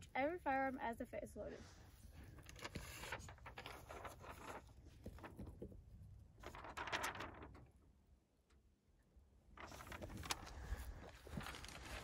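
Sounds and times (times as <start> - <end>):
paper rustling: 1.9 - 7.8, 9.6 - 12.0.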